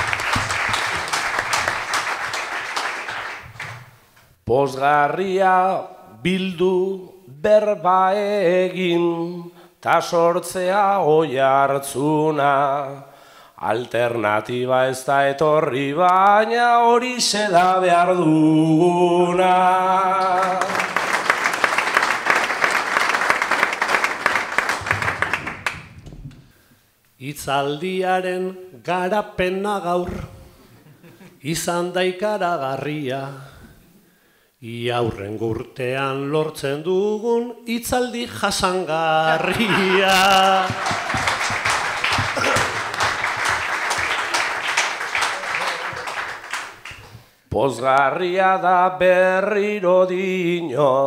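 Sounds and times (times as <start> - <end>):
audience applauding: 0.0 - 4.0, 20.2 - 26.0, 39.3 - 47.2.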